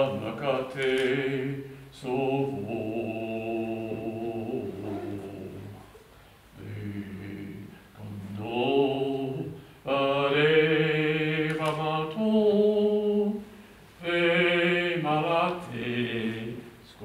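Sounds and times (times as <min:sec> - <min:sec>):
man chanting long low notes: 0:02.3 - 0:05.8.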